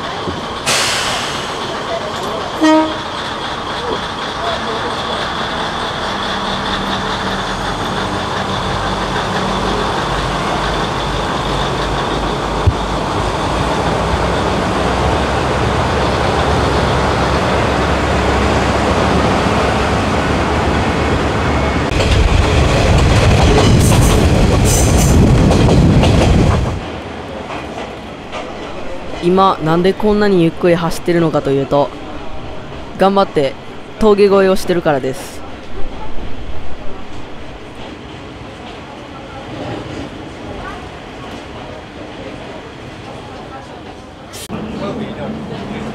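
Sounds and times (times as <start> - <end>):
wheels clattering over rails: 0.0 - 30.0
diesel railcar engine and wheels: 0.0 - 45.9.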